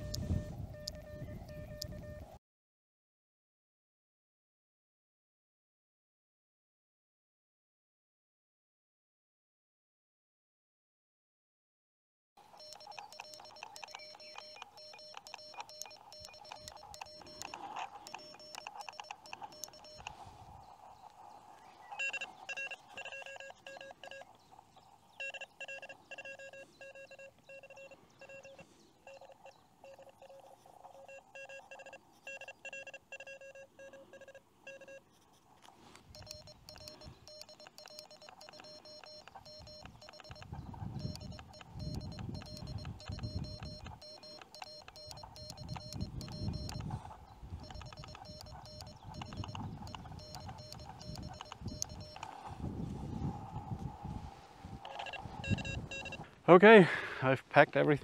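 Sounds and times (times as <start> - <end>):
morse code tones: 0.0 - 2.4, 12.4 - 56.3
faint radio band noise: 12.4 - 58.0.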